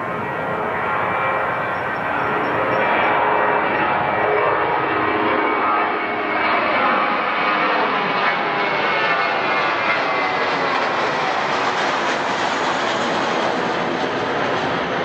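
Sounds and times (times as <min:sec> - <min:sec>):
faint engine whine: 0:00.0 - 0:07.3
jet engines running: 0:00.0 - 0:15.0.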